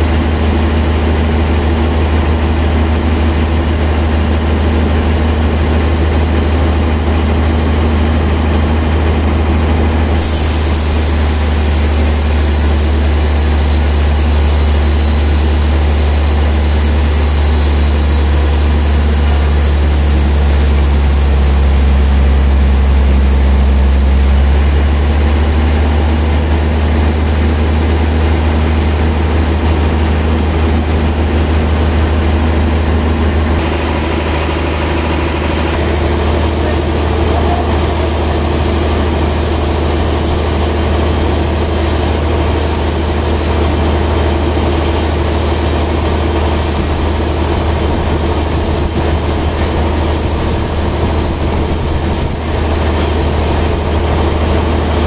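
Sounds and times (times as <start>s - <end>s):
band saw cutting log: 9.7s - 26.8s, 29.6s - 55.0s
bright hiss: 10.1s - 24.5s, 35.8s - 43.7s.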